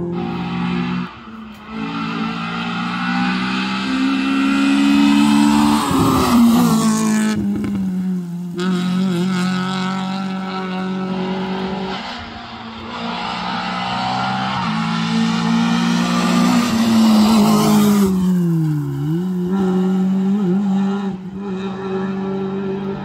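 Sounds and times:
car engine accelerating hard: 0.0 - 23.0.

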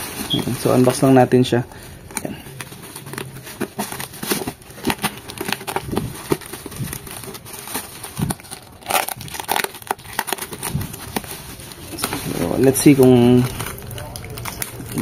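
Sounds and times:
plastic bag and bubble wrap crinkling: 0.0 - 15.0.

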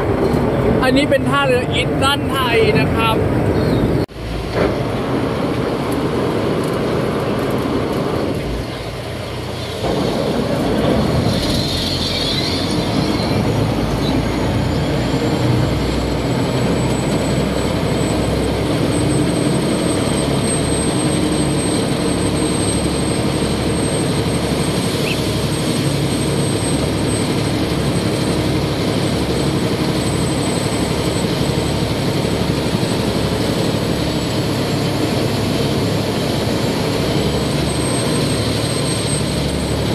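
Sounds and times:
boat diesel engine running: 0.0 - 39.9
wind: 0.0 - 39.9.

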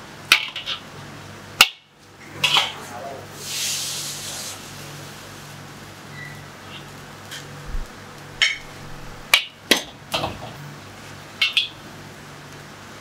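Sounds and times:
metal clanks of wok and utensils: 2.2 - 2.9, 8.4 - 10.5, 11.4 - 11.8
steady low hum: 6.9 - 9.4.

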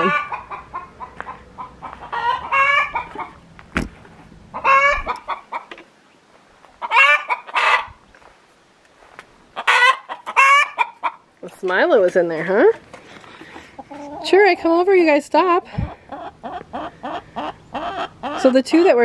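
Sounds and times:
hens cackling loudly: 0.0 - 3.4, 4.5 - 5.7, 6.8 - 8.0, 9.6 - 11.3, 13.5 - 14.8, 15.4 - 19.0.

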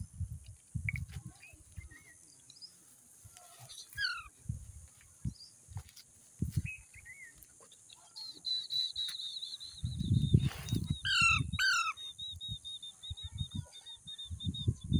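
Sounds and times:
parakeet chirps and whistles: 9.8 - 13.4
parakeet high chattering trill: 11.0 - 12.1.

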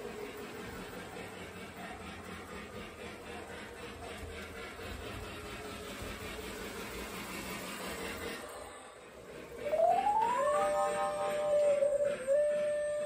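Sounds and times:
model train running: 0.0 - 13.0
rhythmic track clicking: 9.4 - 13.0.

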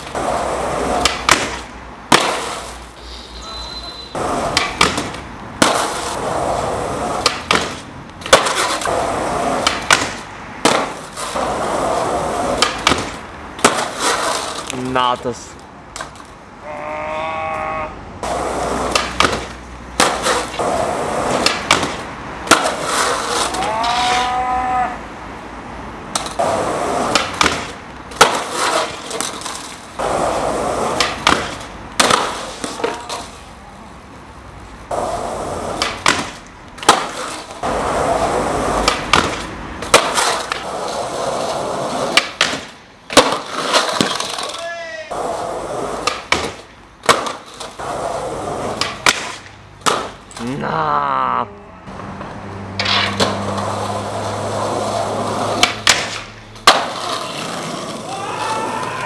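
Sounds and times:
skateboard clacking: 0.0 - 2.8, 4.1 - 14.8, 18.2 - 24.2, 26.1 - 33.4, 34.9 - 50.3, 52.2 - 59.0
skateboard wheels rolling on stone: 0.0 - 3.2, 4.0 - 16.4, 18.2 - 24.9, 26.1 - 33.6, 34.8 - 50.5, 51.9 - 59.0
person groaning: 16.6 - 18.0, 50.4 - 51.9.

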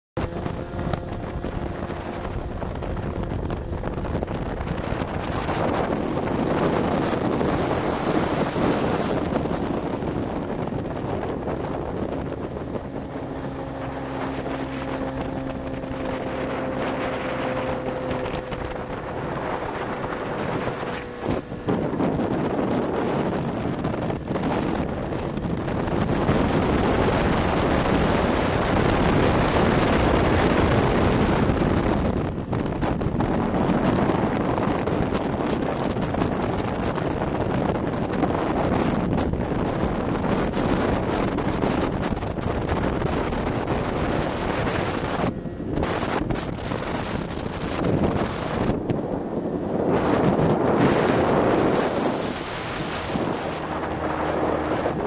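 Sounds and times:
motorboat engine drone: 0.2 - 55.0
rushing water: 0.2 - 55.0
wind buffeting microphone: 0.2 - 55.0.

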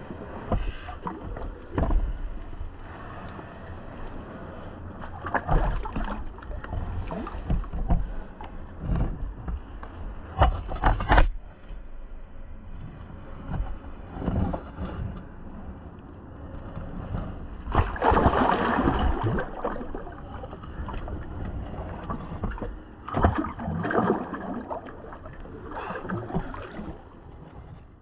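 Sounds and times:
low rumble of handling noise: 0.0 - 28.0
fish splashing in water: 17.8 - 20.2.

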